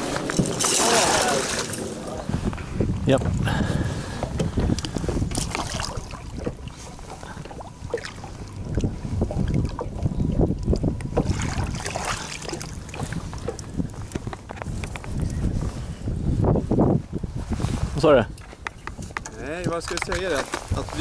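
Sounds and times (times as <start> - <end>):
water splashing against boat: 0.0 - 2.5, 3.1 - 15.7
wind rumbling on microphone: 0.0 - 21.0.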